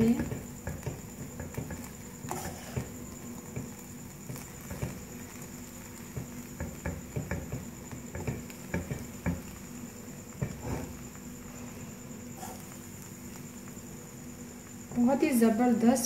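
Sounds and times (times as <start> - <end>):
spatula scraping rice in a wok: 0.1 - 9.7, 10.3 - 11.2, 12.3 - 13.4.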